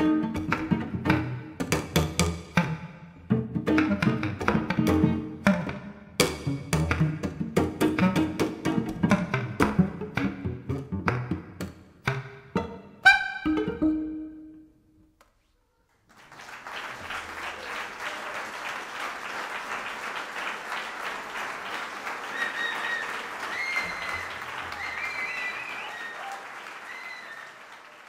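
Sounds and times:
cello and clarinet note: 12.6 - 14.4
audience applauding: 15.9 - 28.0
whistles from audience: 22.1 - 28.0.

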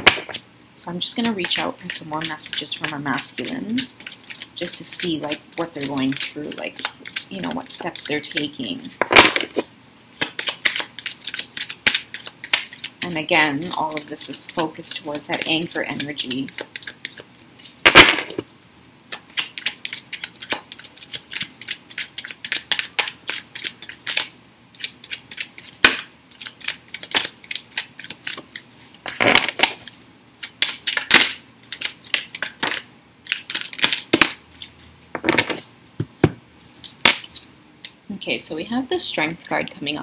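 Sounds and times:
cards being shuffled: 8.3 - 12.9.

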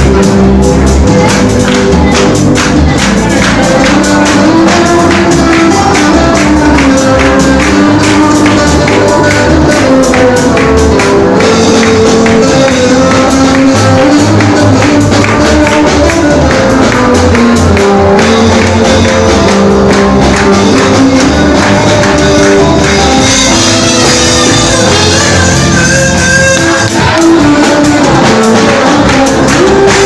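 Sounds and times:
live worship band music: 0.0 - 30.0.

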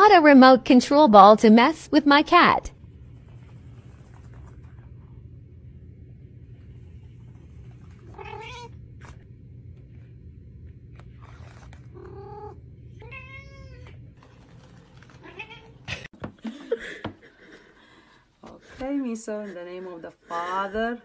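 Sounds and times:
steady low hum: 0.1 - 16.0
cat meowing: 8.1 - 8.8, 12.0 - 14.0.

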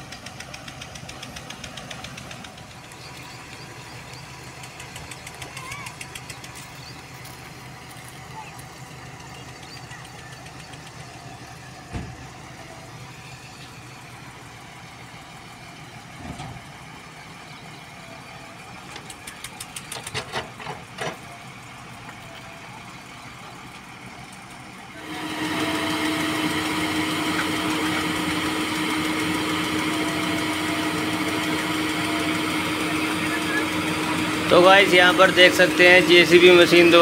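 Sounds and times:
diesel engines running: 0.0 - 37.0
thump: 11.9 - 12.2
knocks and clatters: 18.9 - 21.3.

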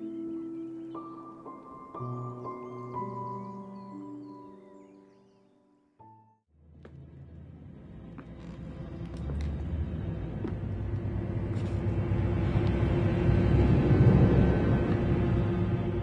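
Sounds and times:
low rumbling drone: 6.6 - 16.0.

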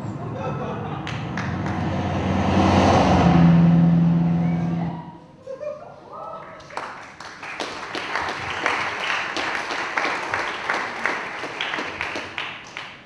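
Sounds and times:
audience applauding: 1.0 - 2.0, 6.4 - 13.0.

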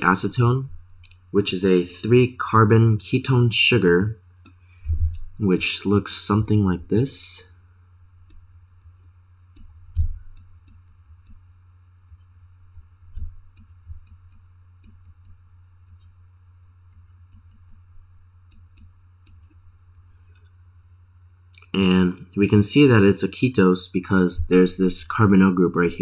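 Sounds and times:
faint low hum: 0.0 - 26.0
low thumps: 4.8 - 5.4, 9.6 - 10.4.

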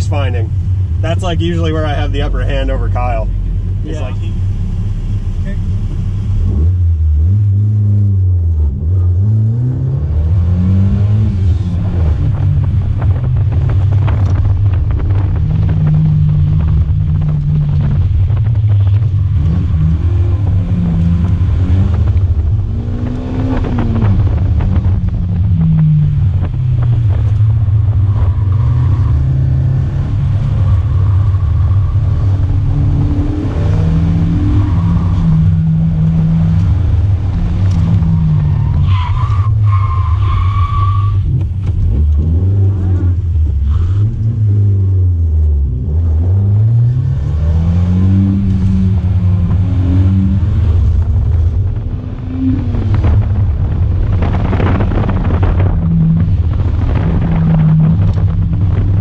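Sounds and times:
car engine revving: 0.0 - 59.0.

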